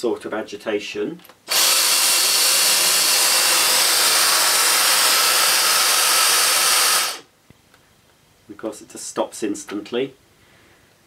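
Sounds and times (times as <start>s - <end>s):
cordless vacuum running: 1.5s - 7.3s.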